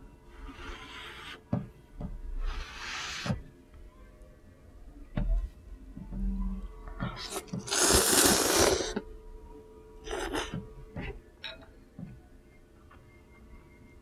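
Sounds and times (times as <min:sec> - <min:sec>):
person slurping noodles: 0:07.2 - 0:09.0
small sucking noises: 0:07.3 - 0:09.0.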